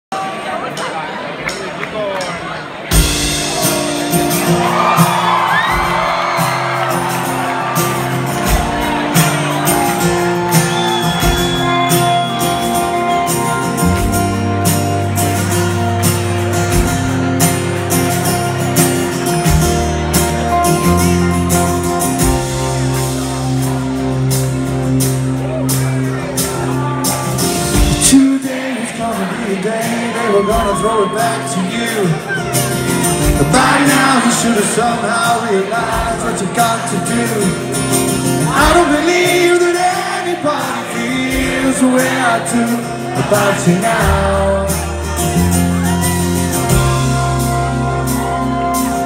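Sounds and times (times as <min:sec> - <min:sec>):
rock band playing live: 0:00.2 - 0:49.0
drum beat: 0:02.9 - 0:12.4, 0:27.6 - 0:28.4, 0:29.9 - 0:31.5, 0:33.2 - 0:34.8, 0:38.5 - 0:39.5
crowd shouting and whooping: 0:03.3 - 0:14.3, 0:25.5 - 0:37.5, 0:38.4 - 0:49.0.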